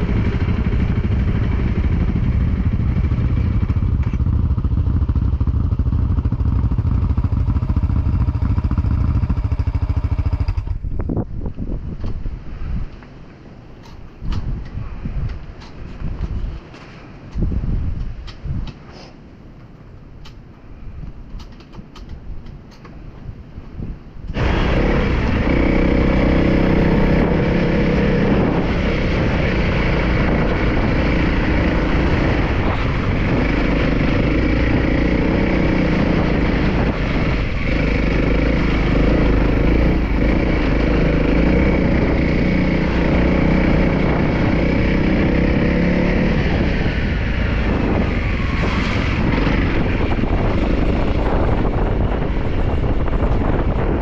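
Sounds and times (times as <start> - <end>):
motorcycle engine running: 0.0 - 11.9, 24.3 - 54.0.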